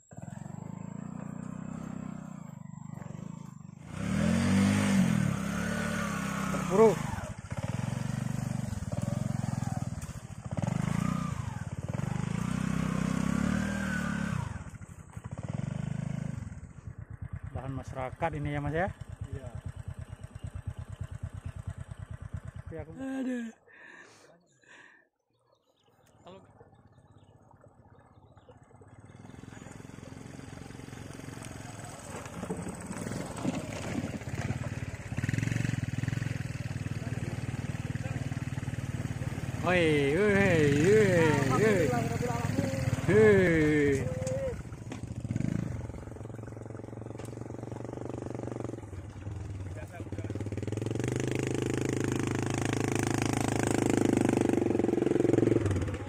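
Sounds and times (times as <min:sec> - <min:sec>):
motorcycle engine revving hard: 0:00.0 - 0:23.2, 0:28.9 - 0:56.0.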